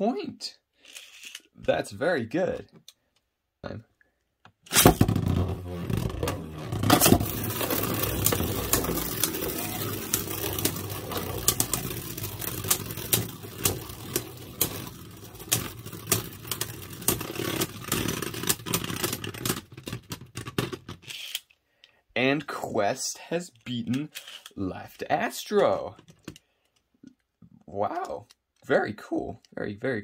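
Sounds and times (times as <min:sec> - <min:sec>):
spinning tops whirring: 0:04.7 - 0:19.3
spinning tops clacking together: 0:06.8 - 0:18.8.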